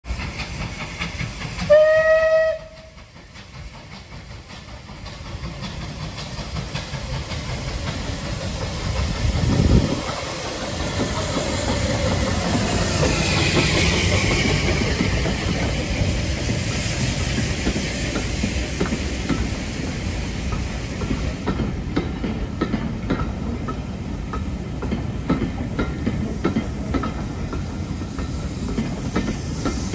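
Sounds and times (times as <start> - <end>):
locomotive exhaust and rolling noise: 0.0 - 29.9
steam hiss: 0.0 - 29.9
steam locomotive whistle: 1.6 - 3.1.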